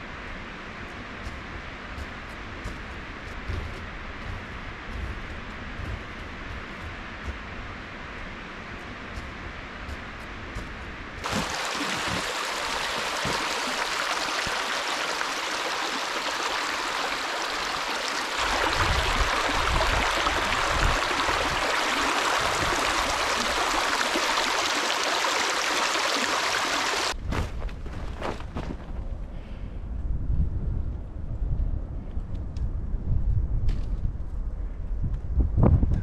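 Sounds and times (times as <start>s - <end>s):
rushing water: 11.2s - 27.2s.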